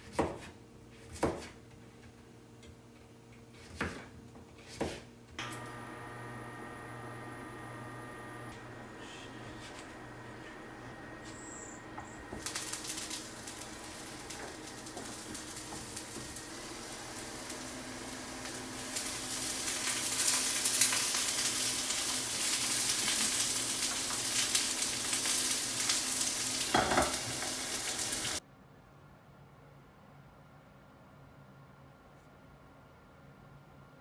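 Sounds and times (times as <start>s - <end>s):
broccoli sizzling in frying pan: 5.5s - 11.2s, 11.9s - 28.4s.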